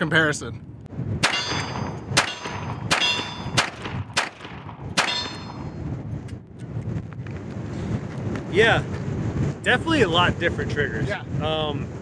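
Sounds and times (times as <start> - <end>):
revolver gunshots with metallic ringing: 1.2 - 5.8.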